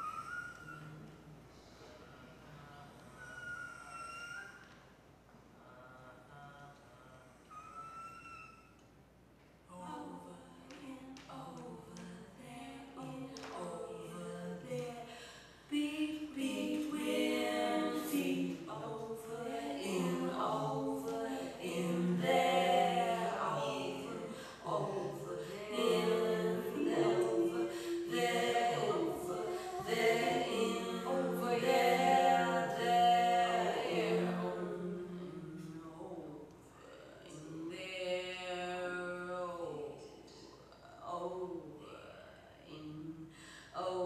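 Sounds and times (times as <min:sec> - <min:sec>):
a cappella group singing: 0:09.7 - 0:40.0.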